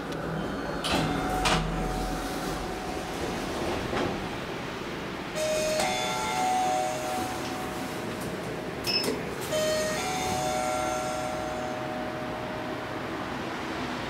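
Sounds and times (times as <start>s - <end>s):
elevator two-note chime: 5.4s - 7.9s, 8.9s - 13.1s.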